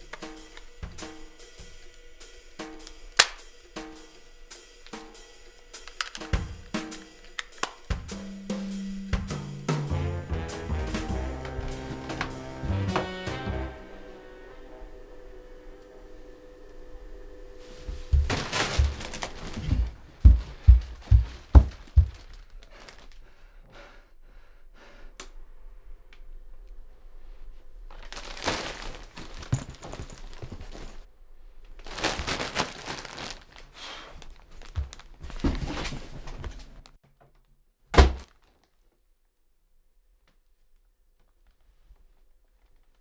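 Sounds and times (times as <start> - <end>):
laundry bags rustling: 11.2 - 13.2, 17.6 - 23.2, 27.9 - 31.1, 31.8 - 37.0
dull thumps: 18.0 - 22.4.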